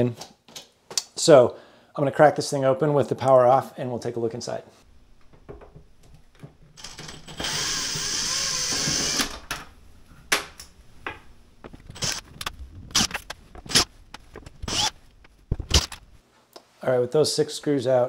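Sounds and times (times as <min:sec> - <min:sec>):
cordless drill running: 0:06.8 - 0:09.5, 0:11.9 - 0:12.3, 0:12.9 - 0:15.9
sharp clicks and knocks: 0:10.3 - 0:16.2.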